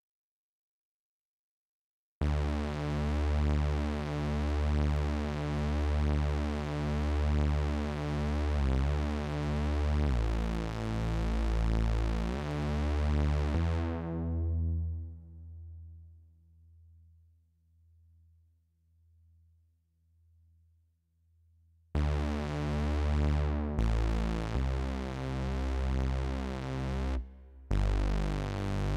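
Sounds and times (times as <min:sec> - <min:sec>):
resonant synth bass tone: 0:09.9 - 0:17.3, 0:22.0 - 0:28.9.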